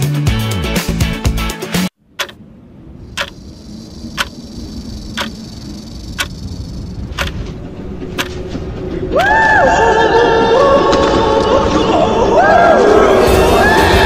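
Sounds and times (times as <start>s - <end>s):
low rumble: 2.0s - 13.7s
clock ticking: 2.2s - 2.4s, 3.2s - 7.4s.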